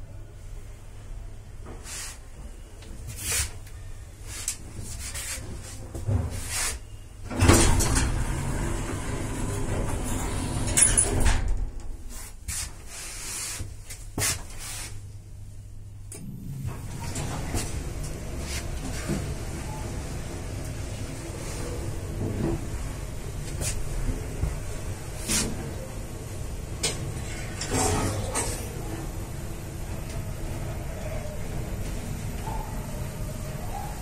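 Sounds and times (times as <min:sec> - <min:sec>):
lift humming: 0:07.3 - 0:11.2, 0:16.1 - 0:34.0
lift doors clicking and knocking: 0:07.3 - 0:12.0
lift rattling: 0:07.3 - 0:12.0, 0:16.3 - 0:23.4.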